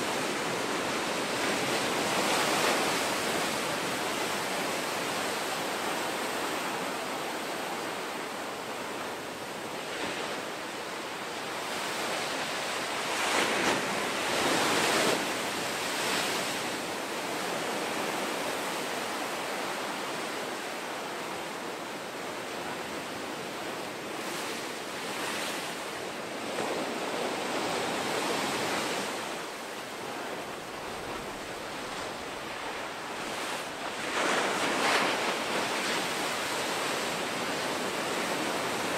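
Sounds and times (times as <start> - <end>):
ocean waves breaking: 7.9 - 38.9.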